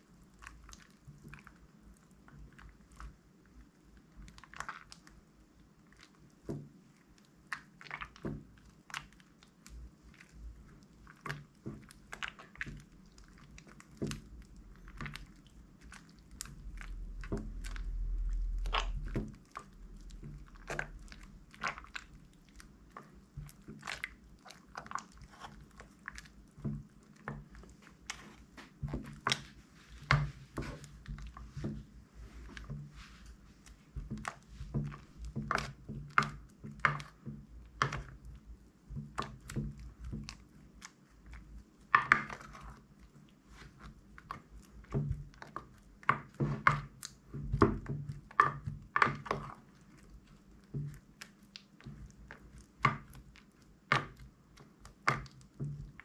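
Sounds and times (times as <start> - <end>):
slime squishing and popping: 11.0 - 31.9.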